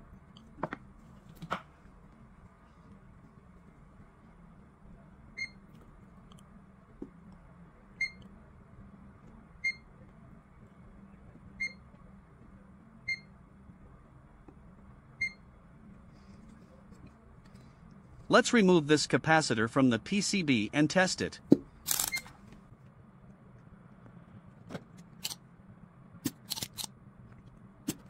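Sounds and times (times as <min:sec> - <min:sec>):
faint low hum: 0:00.0 - 0:28.0
multimeter beeping: 0:21.9 - 0:22.3.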